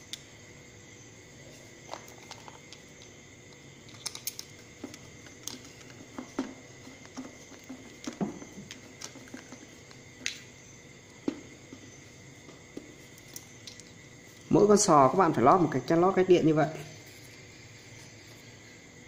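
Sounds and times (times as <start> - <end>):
screwdriver and metal parts clicking: 3.8 - 5.8.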